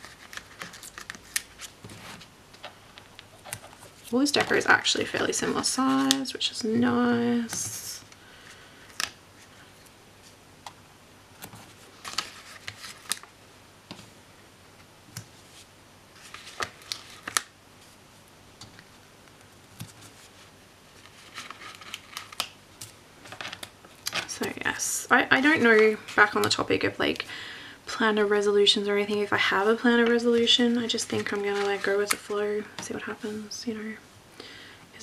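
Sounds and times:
paper rustling: 0.0 - 10.4, 11.4 - 13.3, 15.2 - 18.0, 18.6 - 24.8, 29.3 - 32.4.

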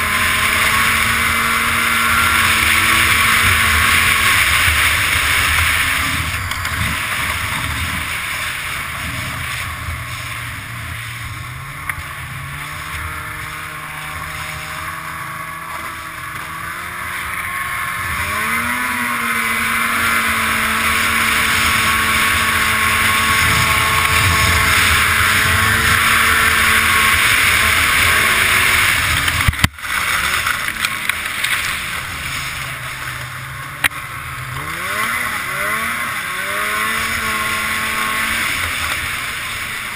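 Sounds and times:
snowmobile engine running: 0.0 - 39.9
wind noise: 19.3 - 29.9.

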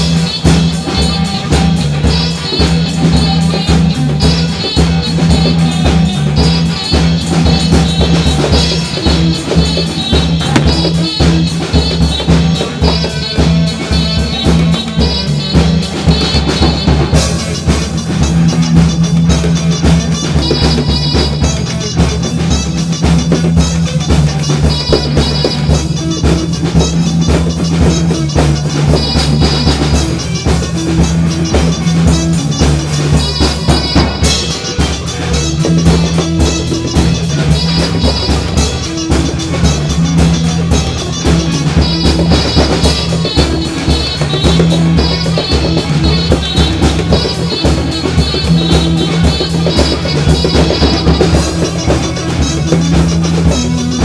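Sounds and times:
band music with drums and bass: 0.0 - 54.0.

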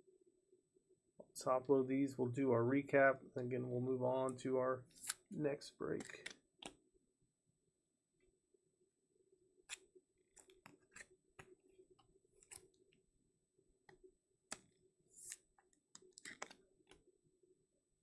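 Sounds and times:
cards clicking and scraping: 4.9 - 5.3, 6.0 - 6.8, 9.7 - 11.6, 12.4 - 12.7, 14.5 - 17.0.

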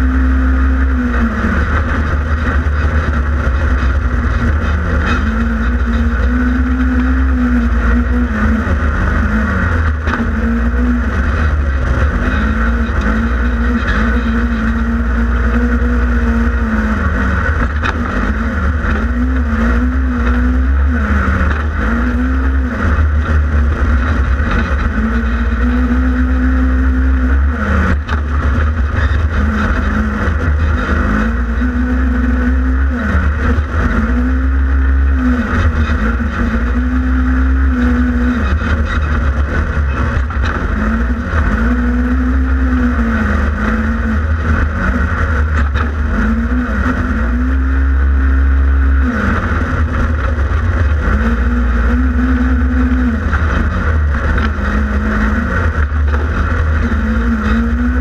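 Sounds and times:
engine revving under throttle: 0.0 - 58.0.

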